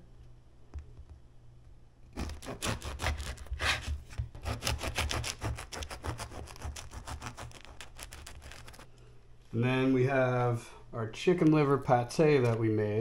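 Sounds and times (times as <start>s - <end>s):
knife sawing through bread: 2.2s - 8.9s.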